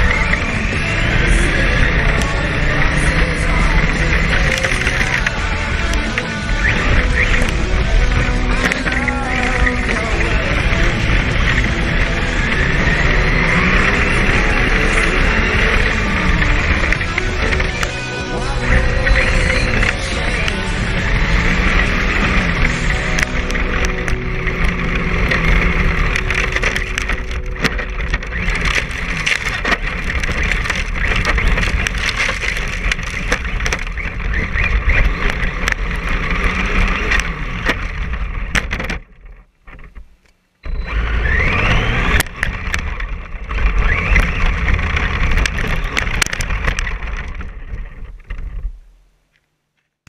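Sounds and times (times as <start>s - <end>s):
rc truck tyres rushing over gravel: 0.0s - 49.0s
rattling clicks: 21.8s - 40.4s, 41.2s - 48.7s.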